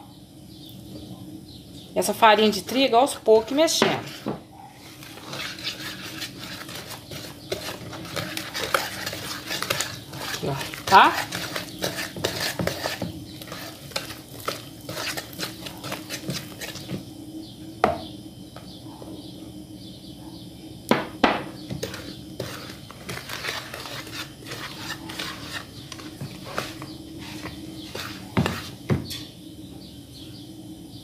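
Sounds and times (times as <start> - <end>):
whisk knocking on bowl: 5.3 - 14.1.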